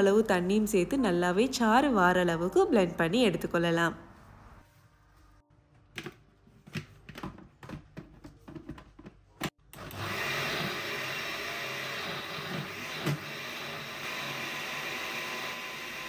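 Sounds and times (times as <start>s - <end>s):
blender motor running: 9.6s - 16.0s.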